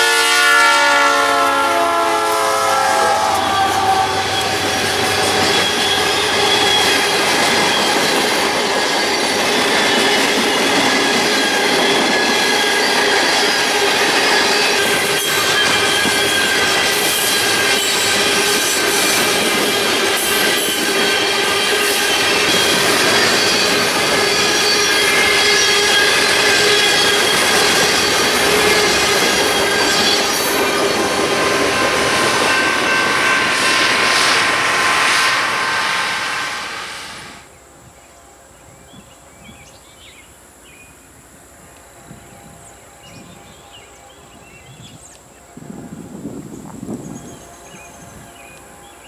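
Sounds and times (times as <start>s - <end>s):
wheels squealing: 2.9s - 37.4s
train wheels rumbling and clattering: 3.3s - 37.4s.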